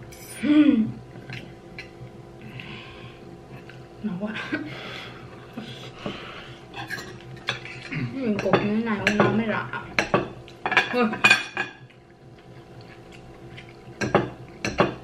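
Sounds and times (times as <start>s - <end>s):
cutlery scraping on ceramic plates: 6.8s - 9.4s.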